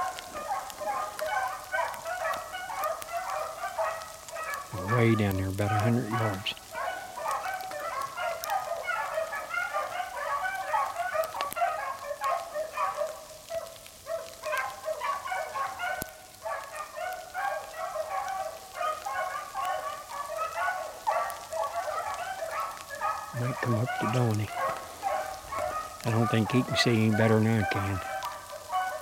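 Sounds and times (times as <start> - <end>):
dogs baying: 0.0 - 29.0.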